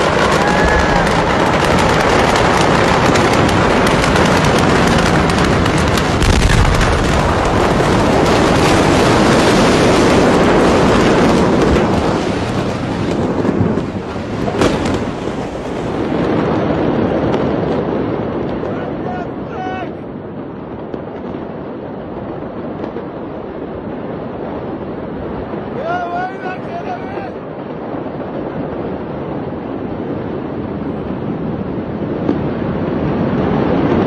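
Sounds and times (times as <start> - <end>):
sharp crack: 0.0 - 16.4
continuous rushing noise: 0.0 - 34.0
fire crackling and popping: 0.0 - 34.0.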